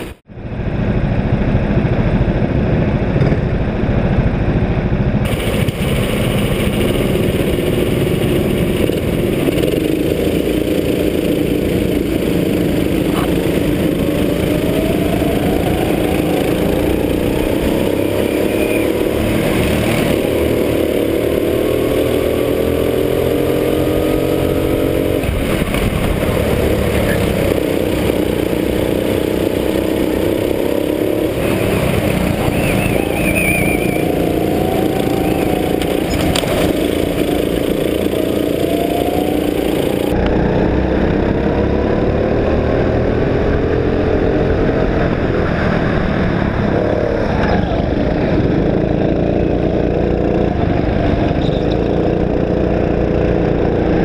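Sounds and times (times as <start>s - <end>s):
rumble of other karts: 0.0s - 54.0s
go-kart engine revving: 0.8s - 54.0s.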